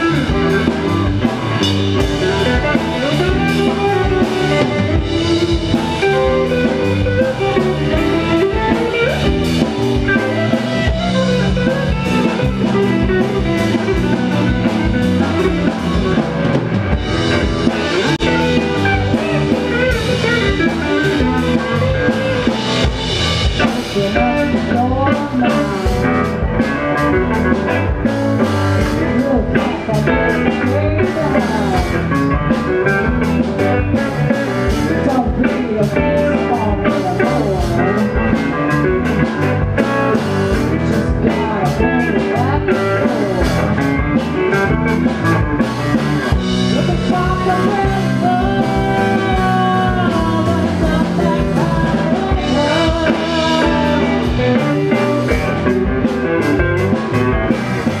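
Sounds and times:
drum kit: 0.0s - 58.0s
electric guitar: 0.0s - 58.0s
woman singing: 23.6s - 26.3s, 28.8s - 32.2s, 34.7s - 38.4s, 40.5s - 43.7s, 46.6s - 56.1s.

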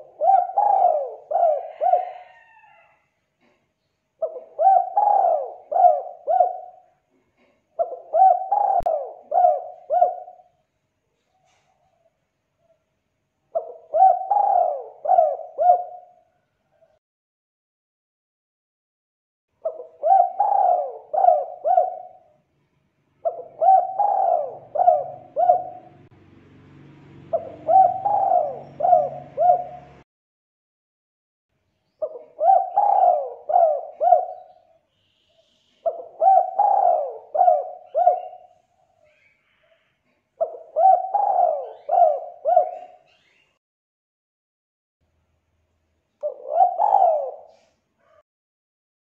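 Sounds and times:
dove cooing: 0.0s - 3.6s, 4.2s - 10.6s, 13.5s - 17.0s, 19.6s - 22.4s, 23.2s - 26.1s, 27.3s - 30.0s, 31.9s - 34.8s, 35.7s - 39.8s, 40.4s - 43.4s, 46.2s - 48.2s.

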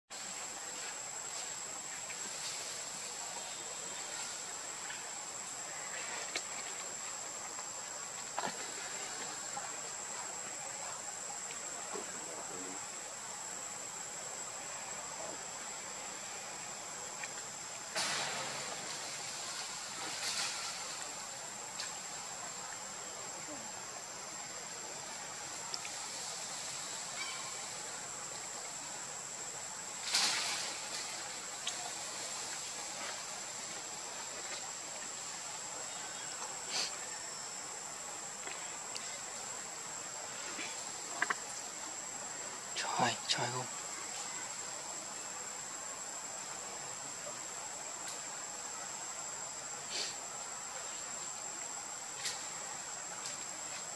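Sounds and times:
soft outdoor hiss: 0.1s - 53.9s
faint clicks: 25.7s - 26.0s
high-pitched insect drone: 26.5s - 29.4s.

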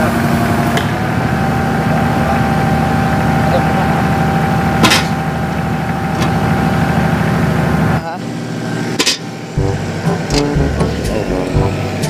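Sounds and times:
diesel engine running: 9.6s - 12.0s.

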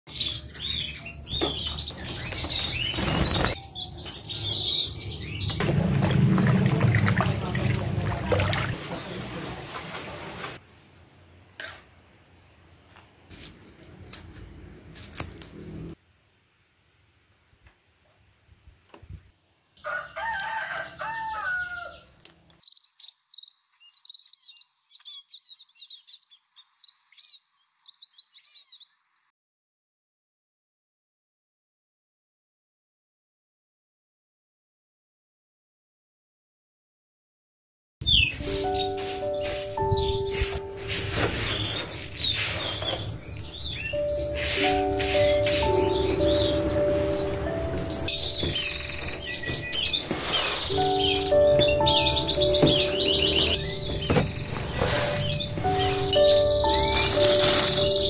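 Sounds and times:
canaries chirping: 0.1s - 6.2s, 22.6s - 29.1s, 38.0s - 58.0s
water sloshing and splashing: 5.6s - 10.6s
rooster crowing: 19.8s - 22.1s.

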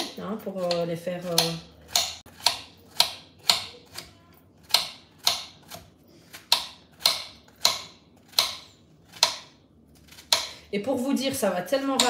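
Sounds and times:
knife chopping on stone board: 1.4s - 3.8s, 4.6s - 5.8s, 6.4s - 9.6s.

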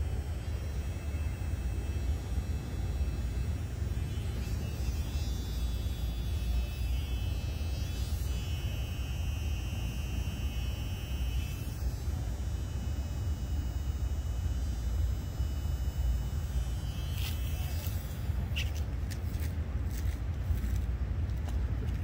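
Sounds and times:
low outdoor rumble: 0.0s - 22.0s.

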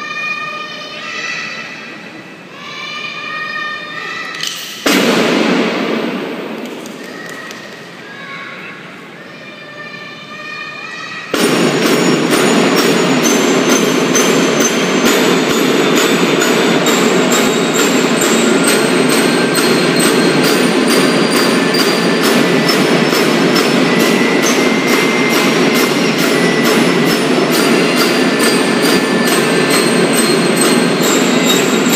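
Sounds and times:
marching snare and bass drums: 11.4s - 31.9s
bell-lyre notes: 11.5s - 31.9s.

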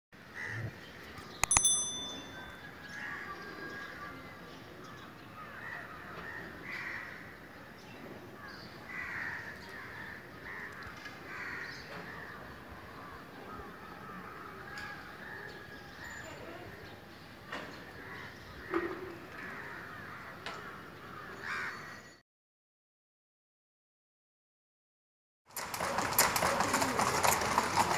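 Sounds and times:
sharp click: 1.4s - 2.5s
bright ringing ding: 1.4s - 2.7s.

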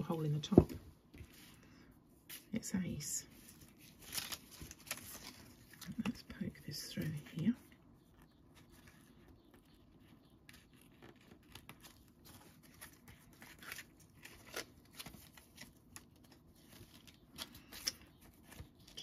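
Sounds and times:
paper and string rustling: 3.3s - 6.2s.

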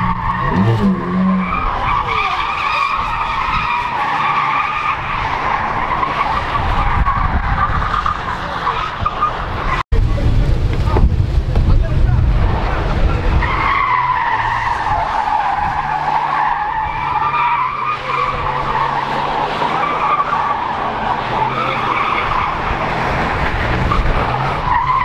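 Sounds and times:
engine at high revs: 0.0s - 7.1s, 15.6s - 24.8s
car tyres squealing: 0.0s - 9.8s, 10.6s - 25.0s.

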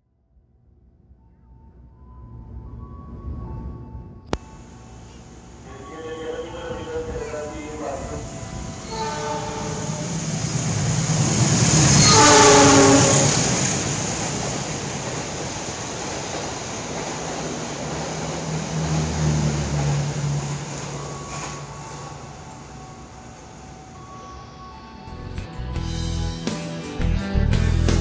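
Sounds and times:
train wheels rushing on rails: 4.4s - 24.7s
train horn blast: 5.6s - 10.4s, 11.9s - 13.5s.

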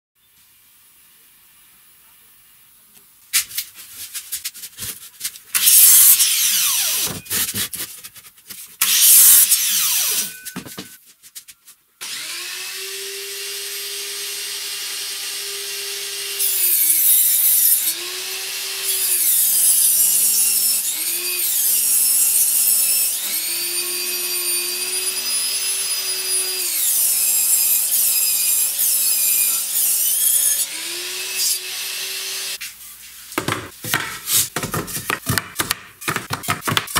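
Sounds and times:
power tool bursts: 5.6s - 7.4s, 8.8s - 10.4s
saw humming: 5.6s - 7.6s, 8.8s - 10.6s, 12.0s - 32.6s
table saw cutting wood: 5.6s - 7.7s, 8.8s - 10.6s, 12.0s - 32.6s.

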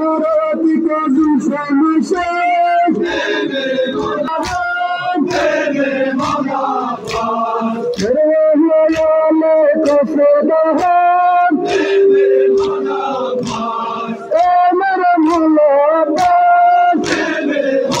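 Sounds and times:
crowd of men chanting: 1.1s - 18.0s
hands slapping chests: 4.0s - 18.0s.

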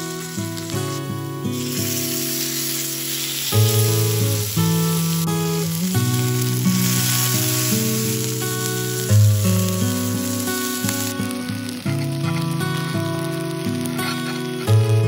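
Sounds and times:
food sizzling in hot oil: 0.0s - 15.0s
plucked background music: 2.0s - 10.4s.

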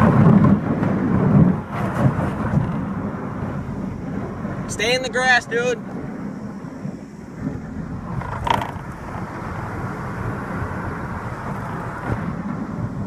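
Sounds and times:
boat hull scraping over grass: 0.0s - 3.6s, 7.4s - 12.8s.

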